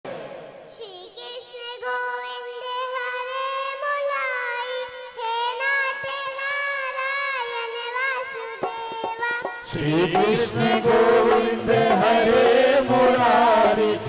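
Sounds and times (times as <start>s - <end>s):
boy singing into a microphone: 0.7s - 14.0s.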